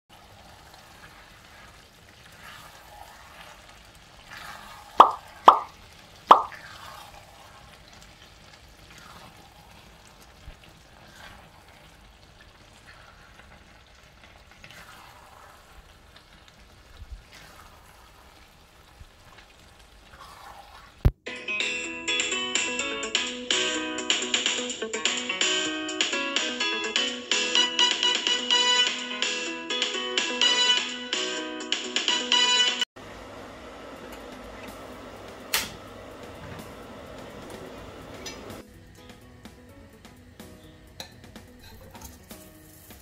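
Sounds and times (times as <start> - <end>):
loud quick plops: 5.0 - 5.7, 6.3 - 6.6.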